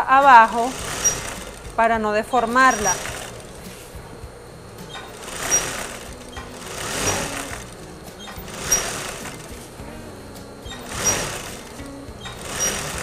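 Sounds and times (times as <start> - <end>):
sewing machine running: 0.0 - 3.7, 5.0 - 9.7, 10.7 - 13.0.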